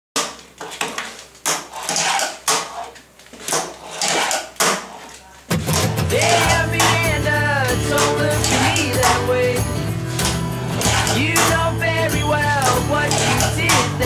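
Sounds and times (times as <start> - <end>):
music: 5.5 - 14.0.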